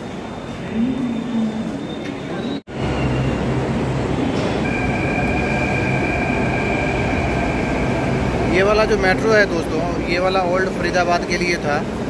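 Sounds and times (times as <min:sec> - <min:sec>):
electric train rumbling: 0:00.0 - 0:12.0
high electric whine: 0:02.7 - 0:10.2.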